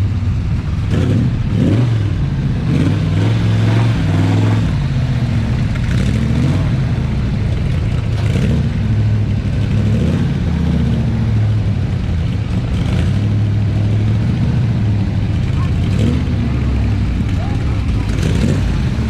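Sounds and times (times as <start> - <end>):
car engine running: 0.0 - 19.0.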